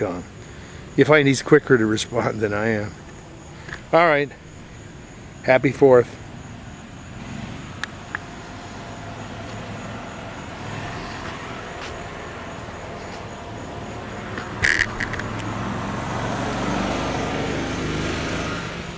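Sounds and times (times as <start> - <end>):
car engine humming: 1.8 - 18.9
sharp click: 14.3 - 15.5.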